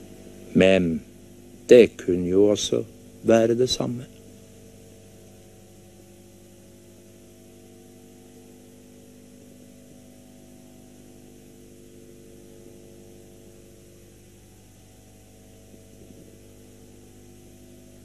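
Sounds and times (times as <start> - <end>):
electrical mains hum: 0.0 - 18.0
faint hiss: 0.0 - 18.0.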